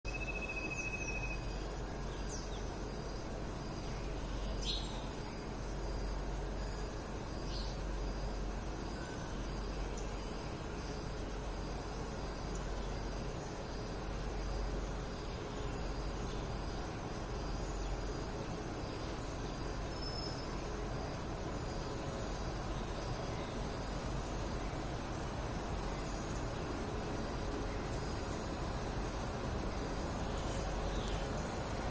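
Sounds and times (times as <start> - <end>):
faint high chirps: 0.1 - 2.6
low rumble and hiss: 0.1 - 31.9.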